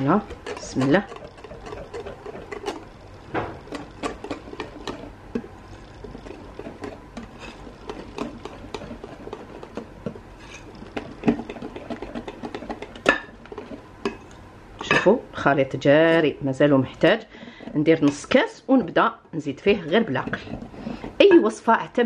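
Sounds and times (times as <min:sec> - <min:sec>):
whisk clicking against bowl: 0:00.0 - 0:02.9, 0:03.6 - 0:14.4
whisk stirring batter: 0:00.0 - 0:14.5, 0:19.5 - 0:21.6.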